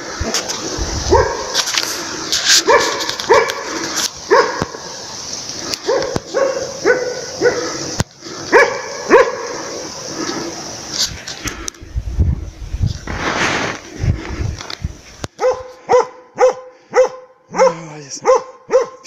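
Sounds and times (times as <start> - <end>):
dog barking: 1.1 - 1.6, 2.6 - 4.8, 5.8 - 7.8, 8.5 - 9.6, 15.4 - 19.0.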